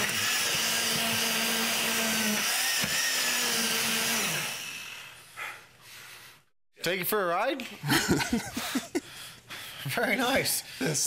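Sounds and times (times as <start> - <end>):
immersion blender motor whine: 0.0 - 5.2.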